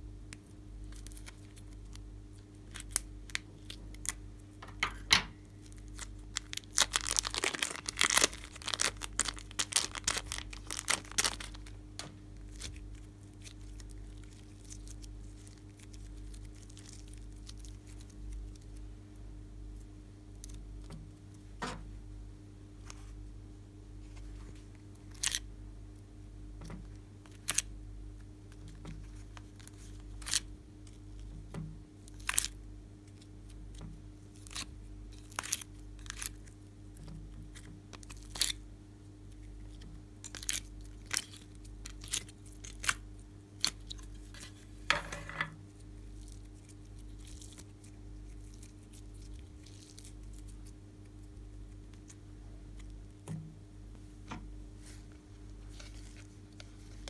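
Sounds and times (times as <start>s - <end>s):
steady low hum: 0.0s - 57.0s
slime crackle: 5.6s - 18.8s, 34.3s - 38.6s, 39.3s - 44.6s, 45.7s - 50.8s.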